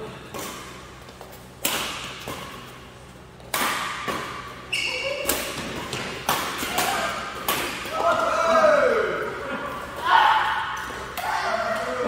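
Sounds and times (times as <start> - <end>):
rackets hitting shuttlecock: 0.3 - 2.8, 3.4 - 8.4.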